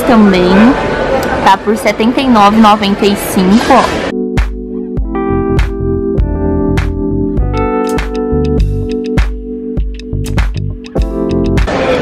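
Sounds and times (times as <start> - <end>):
keyboard chords: 4.0 - 12.0
steady beat: 4.1 - 11.8.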